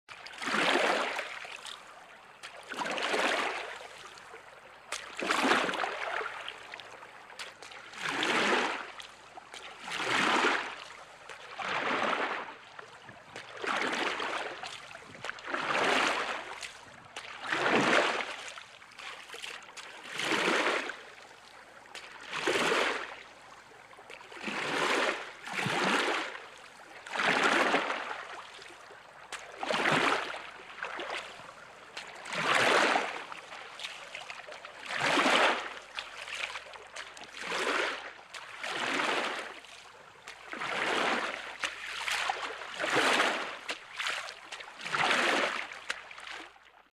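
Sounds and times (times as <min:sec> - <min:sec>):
water swishing with rowing strokes: 0:00.0 - 0:46.9.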